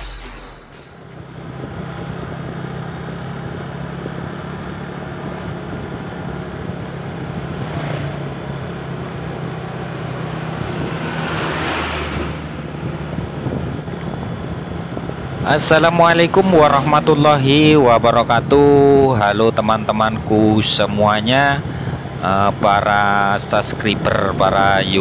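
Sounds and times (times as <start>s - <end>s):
road noise: 0.0s - 25.0s
truck passing close by: 0.7s - 17.9s
motorcycle passing: 1.2s - 19.1s.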